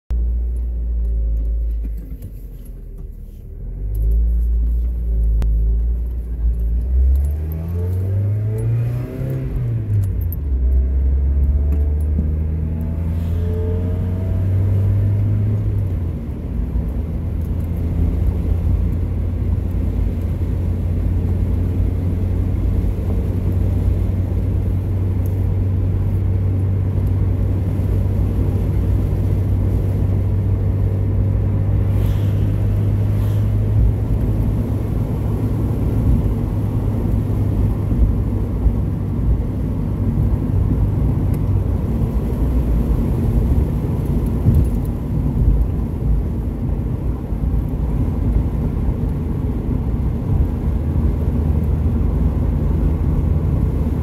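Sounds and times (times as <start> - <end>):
car engine from inside cabin: 0.1 - 54.0
road noise: 0.1 - 54.0.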